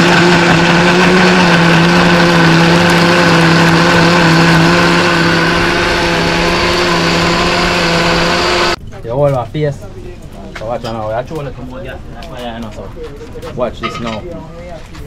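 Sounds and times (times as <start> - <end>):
electric blender running: 0.0 - 8.8.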